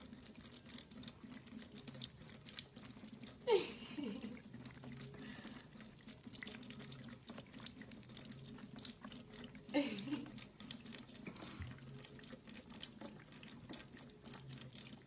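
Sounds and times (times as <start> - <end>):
cat lapping water: 0.0 - 15.0
water running from a tap: 0.0 - 15.0.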